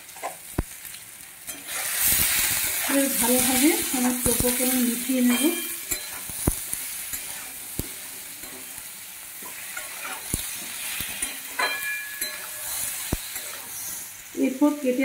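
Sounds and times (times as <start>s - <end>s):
vegetables sizzling in a pan: 0.0s - 15.0s
metal spatula knocking pan: 11.2s - 12.8s.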